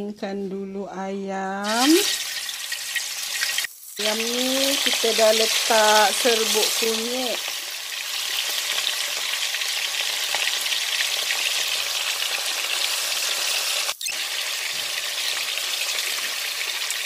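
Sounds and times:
chicken sizzling in hot oil: 0:01.6 - 0:17.0.

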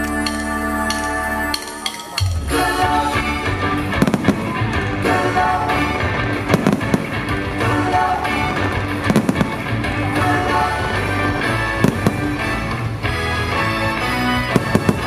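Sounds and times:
loud music with bass line: 0:00.0 - 0:15.0
firework bangs: 0:04.0 - 0:04.8, 0:06.5 - 0:07.4, 0:11.8 - 0:12.6, 0:14.5 - 0:15.0.

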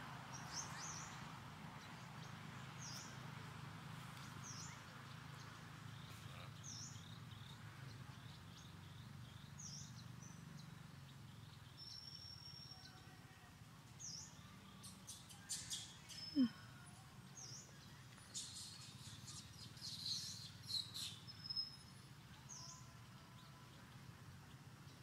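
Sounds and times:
birds chirping: 0:00.3 - 0:03.2, 0:04.2 - 0:25.0.

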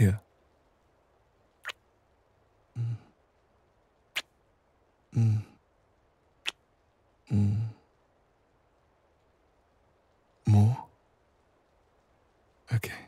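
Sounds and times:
man humming breathily: 0:02.8 - 0:03.1, 0:05.1 - 0:05.6, 0:07.3 - 0:07.8.

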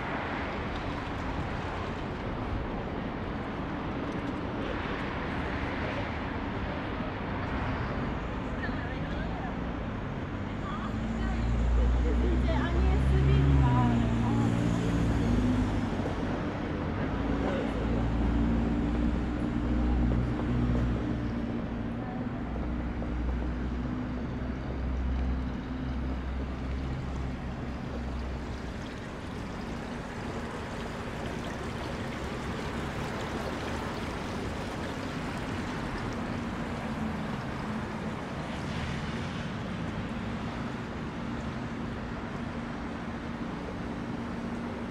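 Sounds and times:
city background noise: 0:00.0 - 0:44.9
vehicle engine humming: 0:11.2 - 0:44.9.

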